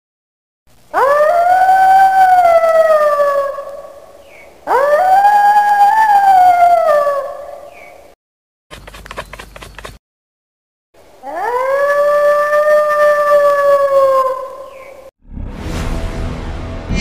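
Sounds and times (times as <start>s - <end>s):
wolf howling: 1.0s - 4.1s, 4.7s - 7.7s, 11.2s - 15.0s.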